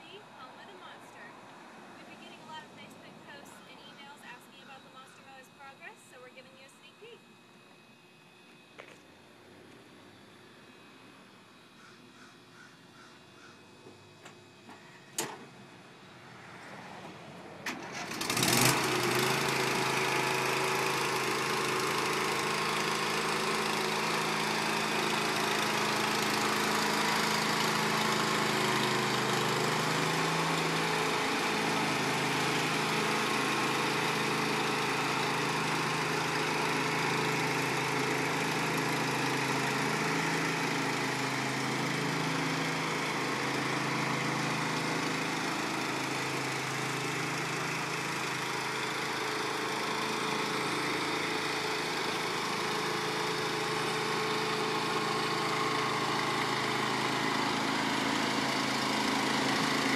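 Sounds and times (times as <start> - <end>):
riding lawn mower engine running: 7.2 - 59.9.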